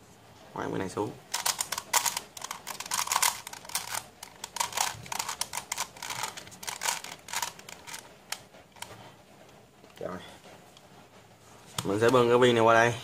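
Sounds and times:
plastic puzzle pieces clicking: 1.3 - 8.9.

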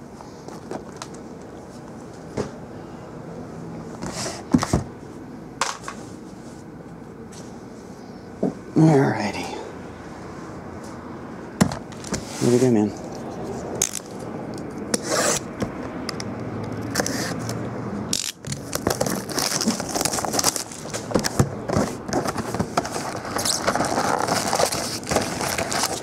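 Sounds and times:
plastic wrap and cardboard rustling: 18.4 - 26.0.

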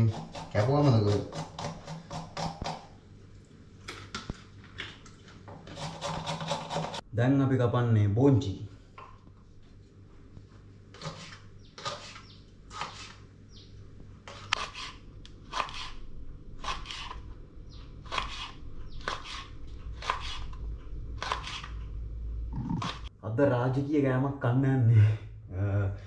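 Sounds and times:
knife chopping on cutting board: 0.0 - 2.9, 14.3 - 16.0, 16.6 - 17.2, 18.0 - 20.6, 21.2 - 21.7.

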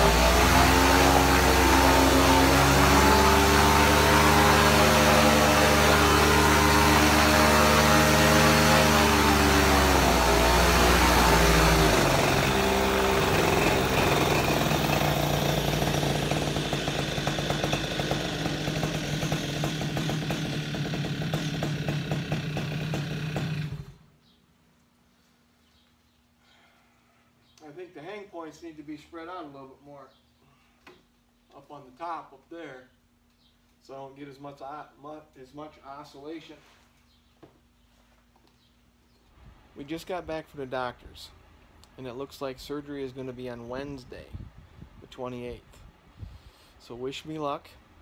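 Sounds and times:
paramotor engine and propeller: 0.0 - 23.9.

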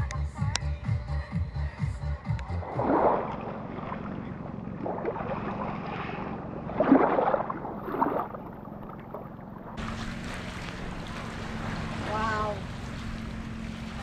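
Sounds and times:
waves washing onto shore: 9.8 - 14.0.

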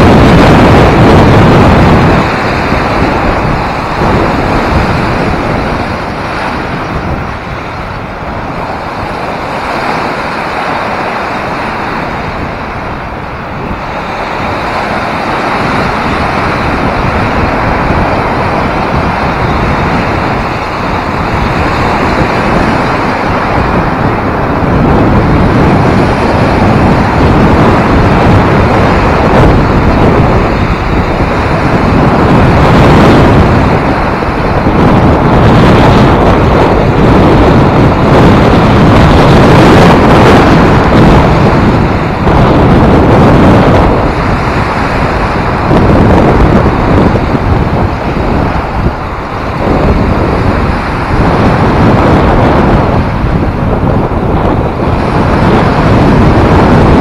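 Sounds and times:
wind on microphone: 0.0 - 57.0
waves breaking against ice: 0.3 - 35.4.

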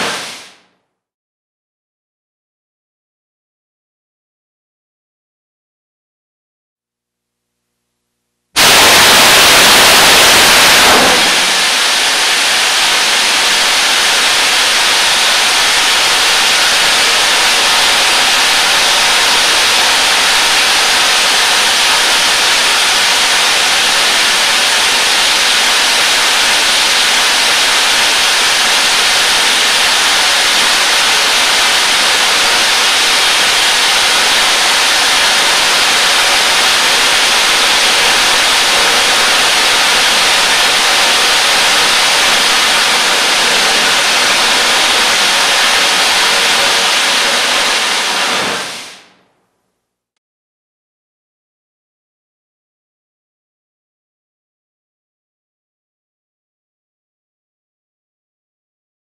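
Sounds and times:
rocket motor firing: 0.0 - 0.7, 8.6 - 49.2.

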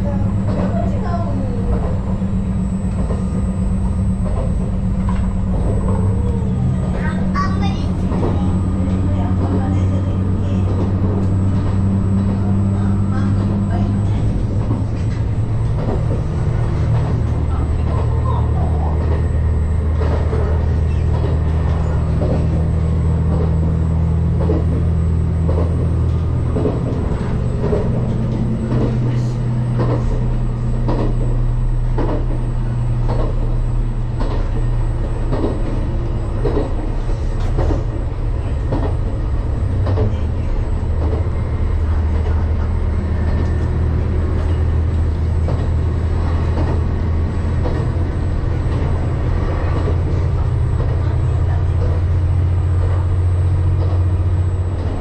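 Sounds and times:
train engine drone and rumble: 0.0 - 55.0
clicks and knocks from track: 19.9 - 55.0.

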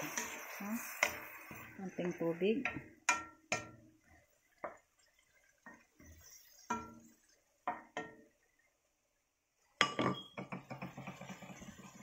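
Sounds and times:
loud sizzle and crackling: 0.0 - 2.6, 10.7 - 12.0.

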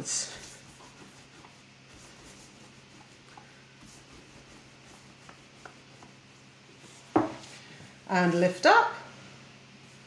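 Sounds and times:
hands rubbing pasta dough: 0.0 - 7.6
rolling pin on wooden board: 0.4 - 7.5.

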